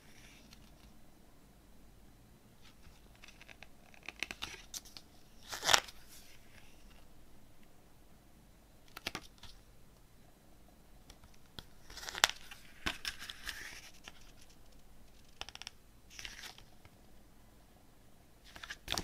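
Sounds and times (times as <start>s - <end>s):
booklet pages turning: 0.0s - 0.9s, 2.6s - 7.0s, 11.1s - 16.9s, 18.4s - 19.0s.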